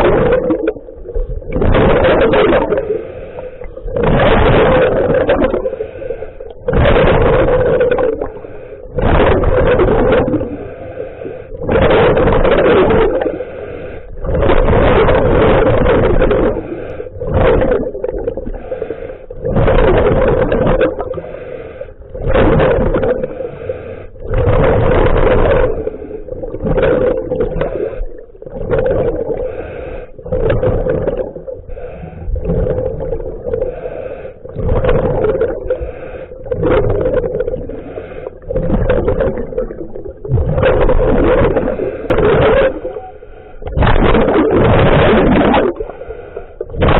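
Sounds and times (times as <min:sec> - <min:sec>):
diver exhaling bubbles: 0:00.0 - 0:46.9
steady hum: 0:00.0 - 0:46.9
regulator inhalations: 0:21.2 - 0:22.0, 0:23.3 - 0:24.2, 0:29.4 - 0:30.3, 0:31.7 - 0:32.4, 0:35.7 - 0:36.5.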